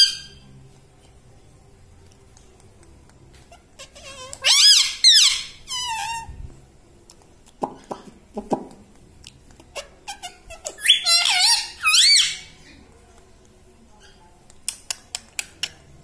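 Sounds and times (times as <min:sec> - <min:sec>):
parakeet calling: 0:03.6 - 0:06.3, 0:09.7 - 0:12.6.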